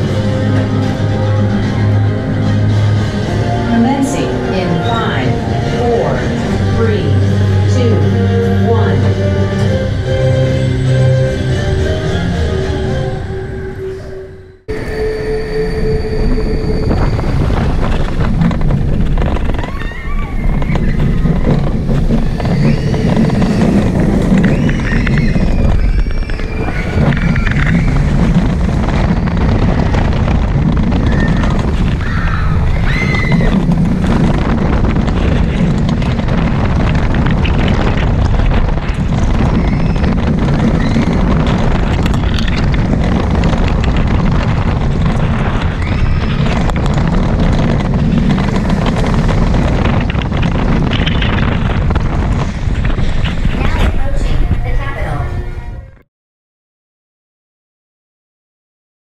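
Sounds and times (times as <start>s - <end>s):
wind rushing over microphone: 0.0s - 14.1s, 14.7s - 56.0s
roller coaster wheels rumbling on track: 0.0s - 56.0s
riders screaming: 19.2s - 51.8s.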